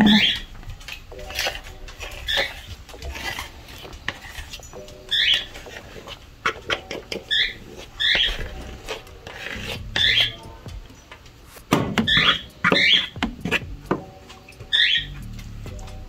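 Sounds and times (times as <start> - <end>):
small pet squeaky calls: 0.0 - 0.5, 4.6 - 5.6, 7.2 - 8.9, 9.6 - 11.1, 12.0 - 13.2, 14.7 - 15.2
spoon scraping plastic bowl: 0.1 - 13.7.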